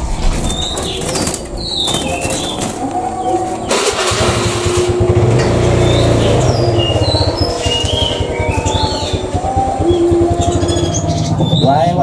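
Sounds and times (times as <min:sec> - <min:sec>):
engine starting and running: 0:00.0 - 0:12.0
songbirds chirping: 0:00.0 - 0:12.0.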